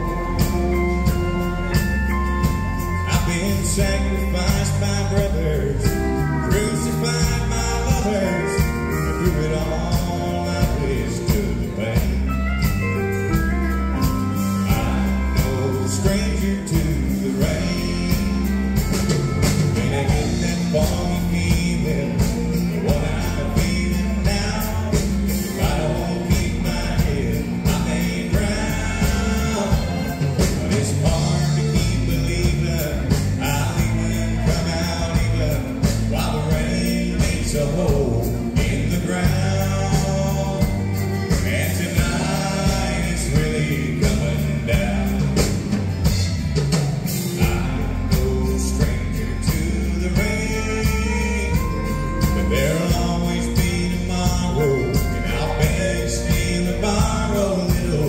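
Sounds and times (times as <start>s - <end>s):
live country band: 0.0s - 58.0s
man singing lead: 0.0s - 58.0s.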